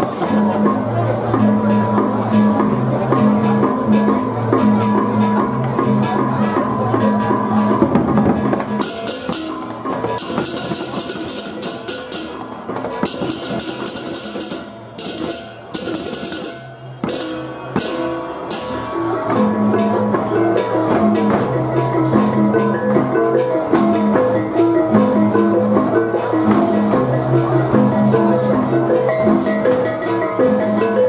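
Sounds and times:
drums: 0.0 - 31.0
pitched gongs interlocking pattern: 0.0 - 31.0
clashing cymbals: 8.7 - 22.4.

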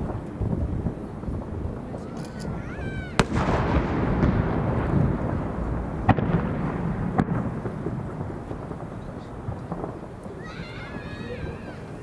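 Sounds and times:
rolling echo rumble: 0.0 - 12.0
sharp bangs: 1.9 - 12.0
firework shell boom: 3.2 - 10.0.

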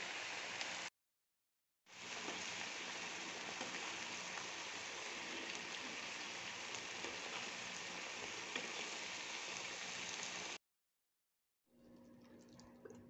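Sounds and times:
vegetables sizzling in a frying pan: 0.0 - 0.9, 1.9 - 10.6.

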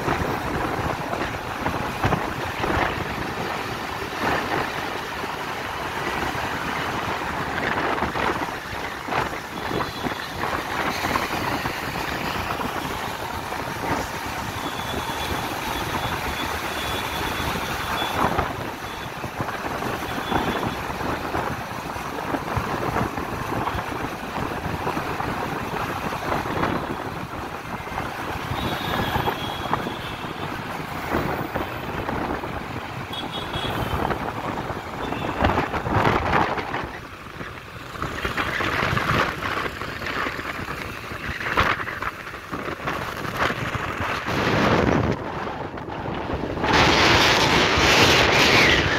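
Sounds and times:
rumble of tyres and engines: 0.0 - 48.9
wind buffeting microphone: 33.8 - 48.9.

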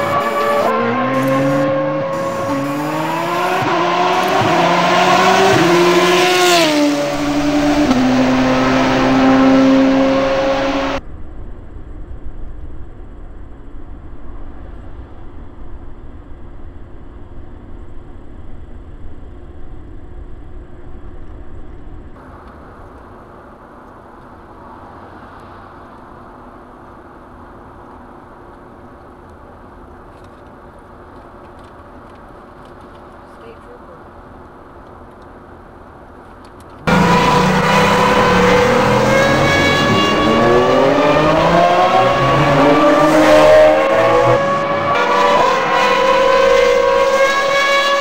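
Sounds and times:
car engine revving: 0.0 - 11.0, 36.8 - 48.0
road hum inside car: 0.0 - 48.0.

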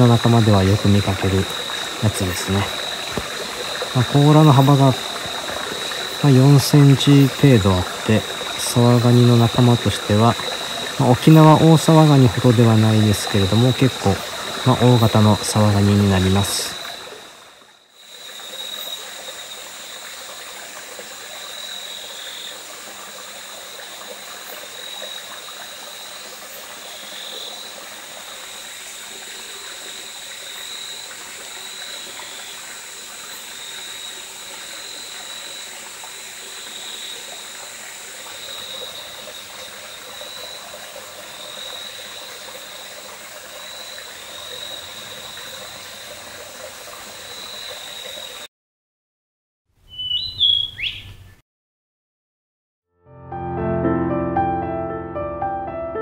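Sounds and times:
stream running: 0.0 - 48.5
night animals calling: 49.9 - 51.2.

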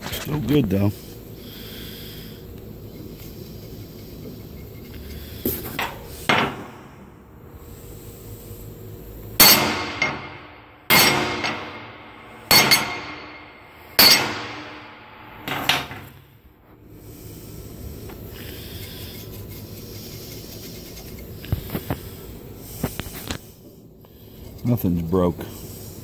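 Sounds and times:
hand rubbing coated surface: 2.1 - 6.3, 16.9 - 26.0
hammer striking steel plate: 9.4 - 16.0.

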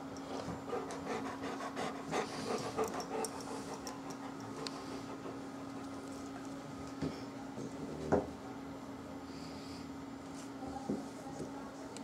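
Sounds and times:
dog panting: 0.3 - 6.0.

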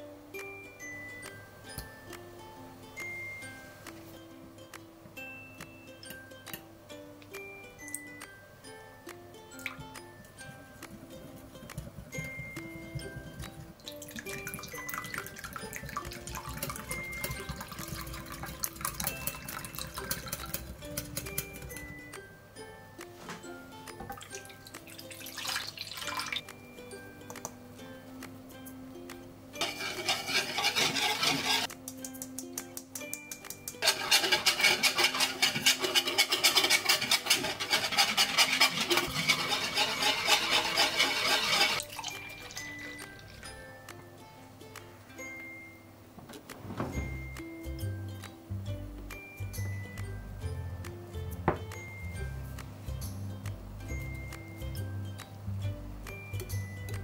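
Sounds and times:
light background music: 0.0 - 57.0
milk pouring into bowl: 13.8 - 20.7, 24.1 - 26.4, 33.8 - 43.4.

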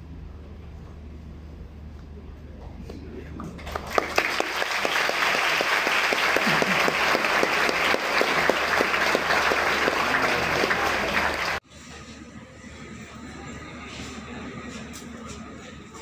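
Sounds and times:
audience applauding: 3.6 - 11.6.

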